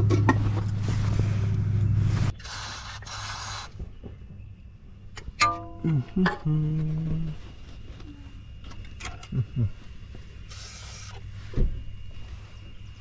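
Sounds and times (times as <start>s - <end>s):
low hummed note: 0.0s - 2.3s, 5.4s - 10.5s
aerosol can spraying: 2.4s - 3.8s
low grunt-like sounds: 5.8s - 7.4s, 9.2s - 9.8s.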